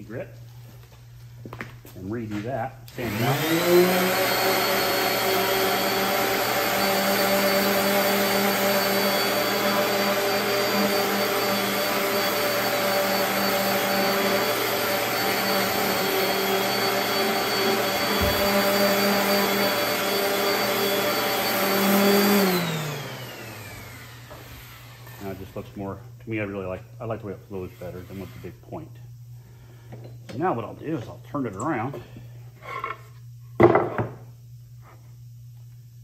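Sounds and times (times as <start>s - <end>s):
orbital sander on wood: 2.9s - 25.9s, 27.5s - 28.8s.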